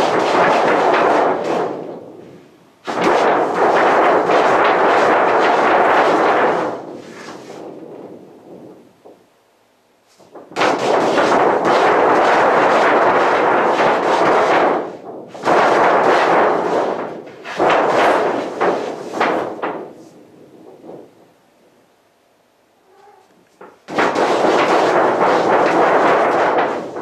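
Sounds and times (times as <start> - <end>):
cat scratching paper: 2.9 - 7.8, 10.1 - 20.2, 23.0 - 27.0
stiff paper crackling: 23.4 - 27.0.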